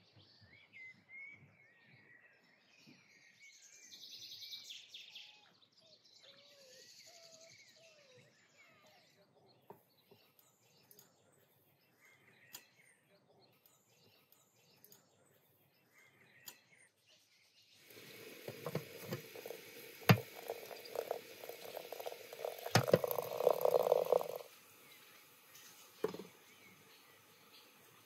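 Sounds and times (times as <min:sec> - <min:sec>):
faint birdsong: 0:00.0 - 0:28.0
water sloshing in glass teapot: 0:17.9 - 0:26.4.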